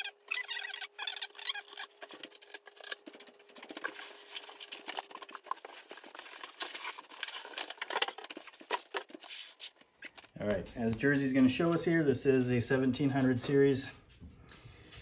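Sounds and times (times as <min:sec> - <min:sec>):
paper rustling and crinkling: 0:01.3 - 0:10.4.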